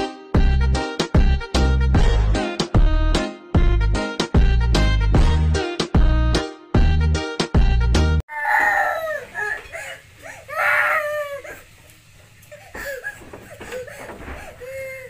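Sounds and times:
young girl crying: 8.3s - 11.8s, 12.5s - 15.0s.

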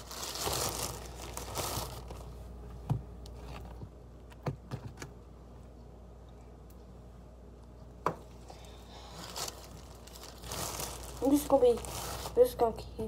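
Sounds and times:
plastic bag crinkling: 0.0s - 2.4s, 8.9s - 12.8s.

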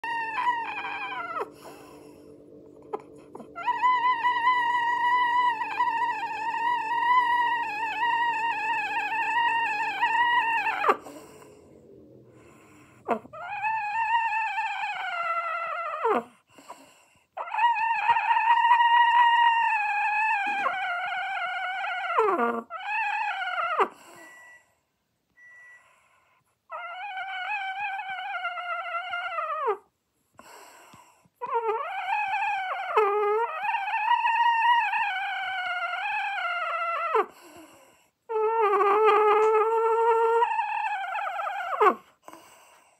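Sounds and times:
rooster wavering calls: 0.0s - 16.2s.

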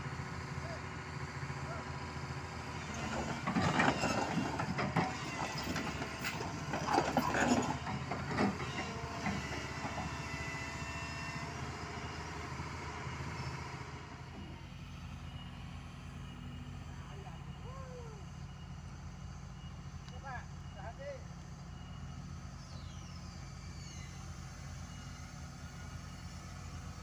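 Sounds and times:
excavator diesel engine running: 0.0s - 27.0s
steel tracks clanking and squealing: 2.6s - 11.6s.

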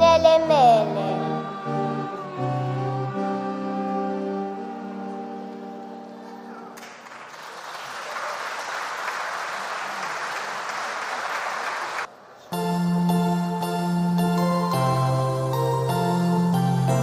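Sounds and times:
choir singing held chord: 0.0s - 6.0s
audience applause: 6.0s - 12.1s.

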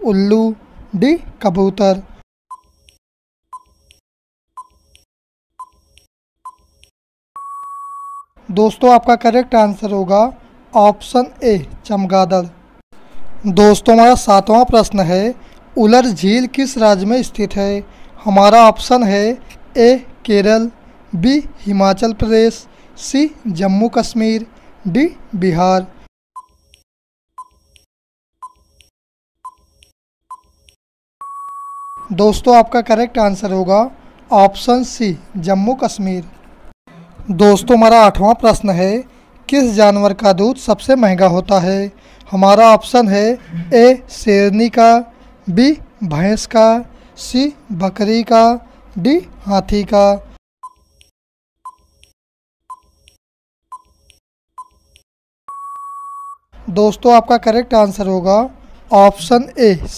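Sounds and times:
steady timer beep: 2.5s - 2.8s, 3.5s - 3.8s, 4.6s - 4.8s, 5.6s - 6.7s, 7.4s - 8.3s, 26.4s - 26.6s, 27.4s - 27.7s, 28.4s - 28.7s, 29.4s - 29.7s, 31.2s - 32.1s, 50.6s - 50.9s, 51.6s - 51.9s, 52.7s - 53.0s, 54.6s - 54.8s, 55.5s - 56.4s
steady beep: 7.4s - 8.3s, 31.2s - 32.1s, 55.5s - 56.4s
short electronic ticks: 27.4s - 29.7s, 51.7s - 55.0s.

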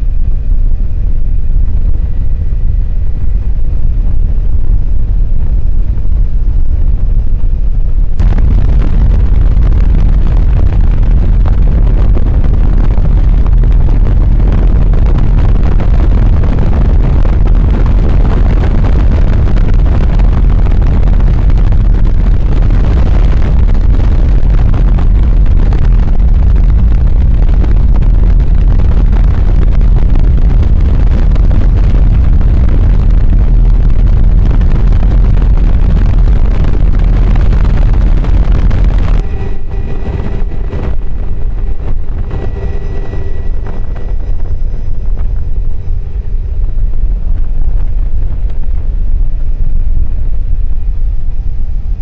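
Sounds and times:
wind buffeting microphone: 0.0s - 52.0s
helicopter rotor and engine: 39.1s - 49.6s.

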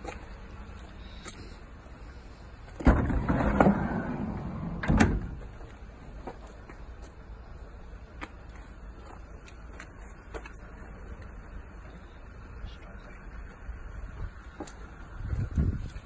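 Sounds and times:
sliding door rumbling on runner: 2.8s - 5.5s
van door unlatching clunk: 2.8s - 5.6s.

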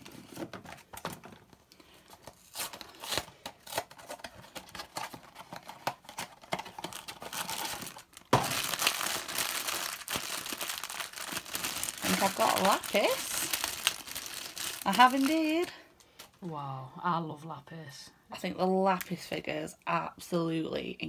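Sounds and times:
foil bag crinkling: 6.4s - 15.8s.

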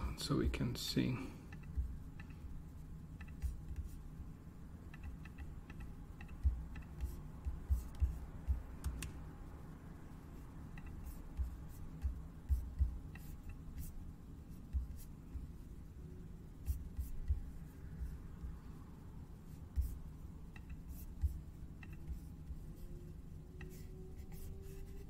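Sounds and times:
steady low hum: 0.0s - 25.0s
computer mouse clicking: 1.5s - 2.4s, 3.2s - 4.0s, 4.9s - 9.2s, 10.7s - 13.9s, 19.8s - 22.6s, 23.5s - 24.9s
soft low thumps: 6.3s - 9.1s, 11.0s - 13.1s.

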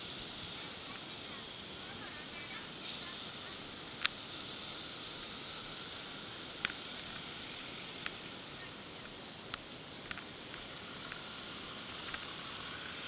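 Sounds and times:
street hiss: 0.0s - 13.0s
sharp clicks: 9.0s - 13.0s.

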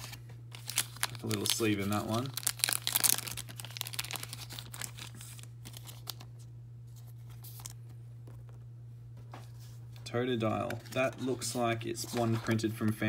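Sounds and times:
cards rustling and clicking: 0.0s - 8.6s, 10.4s - 13.0s
steady low hum: 0.0s - 13.0s.

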